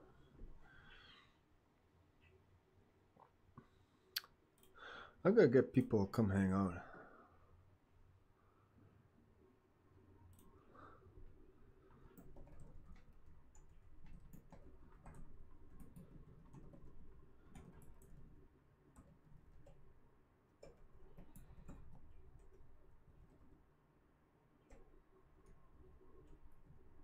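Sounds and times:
low room hum: 0:00.0 - 0:27.0.

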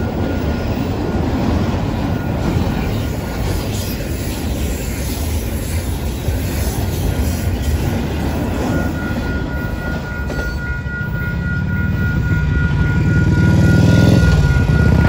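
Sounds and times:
freight cars rumbling past: 0:00.0 - 0:15.0
high ringing tone: 0:00.0 - 0:15.0
engine rising in pitch: 0:08.7 - 0:15.0.

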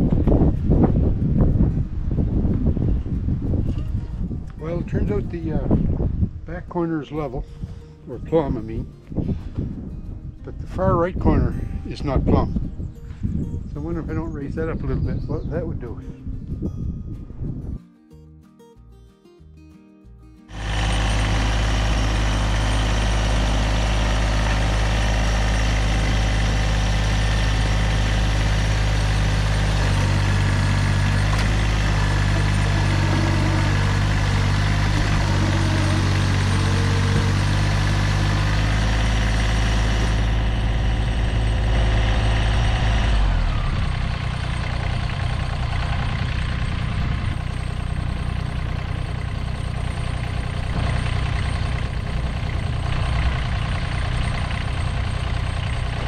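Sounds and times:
tractor diesel engine running: 0:00.0 - 0:16.6, 0:20.5 - 0:56.0.

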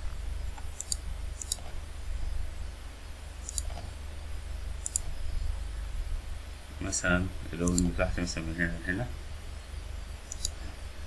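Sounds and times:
low electrical hum: 0:00.0 - 0:11.0
computer mouse clicking: 0:00.5 - 0:01.8, 0:03.4 - 0:03.9, 0:04.8 - 0:05.1, 0:07.6 - 0:07.9, 0:10.3 - 0:10.6.

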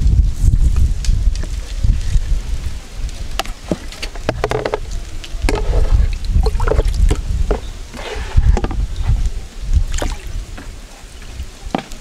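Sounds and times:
steady low rumble: 0:04.2 - 0:10.6.

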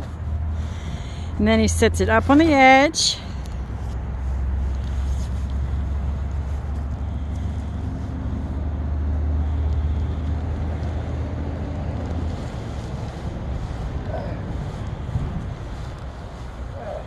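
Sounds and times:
steady low rumble: 0:00.0 - 0:17.0
nylon tent rustling: 0:10.9 - 0:17.0.

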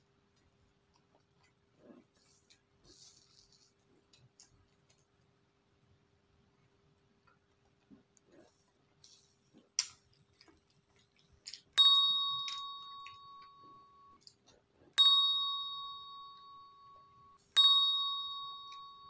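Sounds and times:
notification bell ding: 0:11.8 - 0:14.2, 0:15.0 - 0:19.0.

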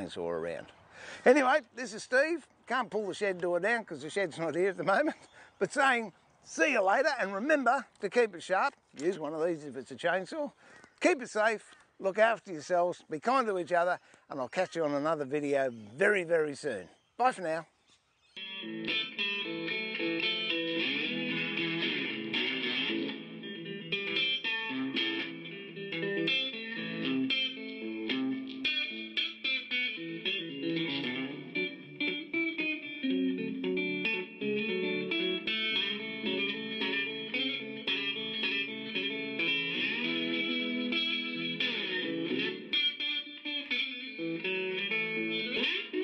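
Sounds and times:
guitar playing plucked notes: 0:18.4 - 0:46.0.

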